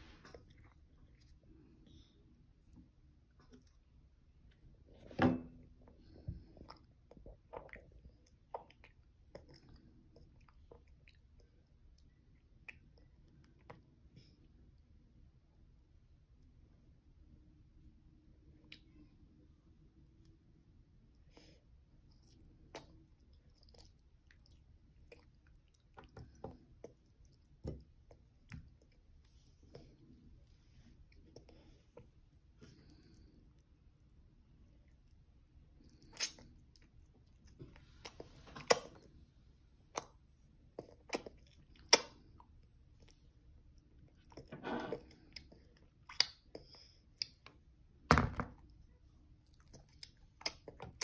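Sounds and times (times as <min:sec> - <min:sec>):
toddler chewing with wet smacks: 0:05.7 - 0:14.2, 0:21.1 - 0:30.1, 0:30.7 - 0:39.2, 0:39.8 - 0:47.6, 0:48.7 - 0:51.0
toddler chewing food: 0:49.4 - 0:51.0.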